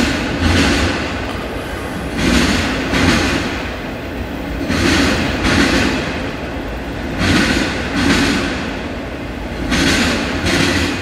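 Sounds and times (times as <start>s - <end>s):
train wheels clacking over rail joint: 0.0s - 3.7s, 4.6s - 6.2s, 7.1s - 8.7s, 9.5s - 11.0s
freight train rumble: 0.0s - 11.0s.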